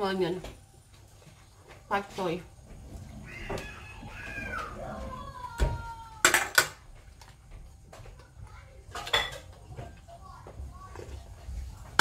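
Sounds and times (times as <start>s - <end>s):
cutlery clinking on dishes: 8.9s - 9.9s.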